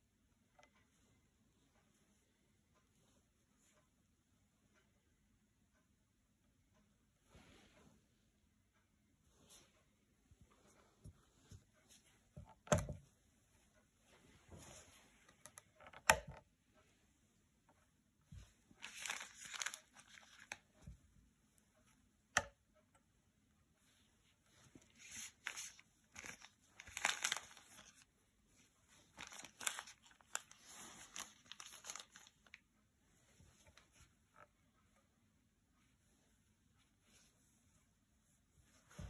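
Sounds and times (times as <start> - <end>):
gloved hand rustling: 24.5 - 32.6.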